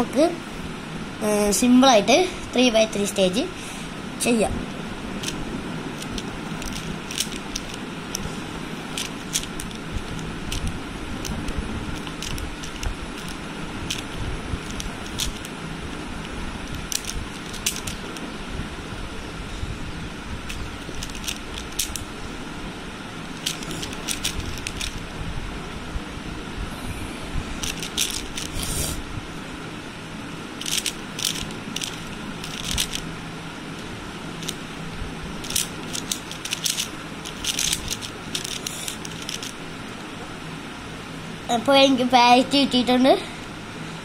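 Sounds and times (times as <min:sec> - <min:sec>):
speed cube plastic clicks: 0:06.0 - 0:08.2, 0:09.0 - 0:15.5, 0:16.7 - 0:18.1, 0:20.5 - 0:22.0, 0:23.4 - 0:25.0, 0:27.6 - 0:28.6, 0:30.6 - 0:33.0, 0:34.4 - 0:34.6, 0:35.4 - 0:39.6.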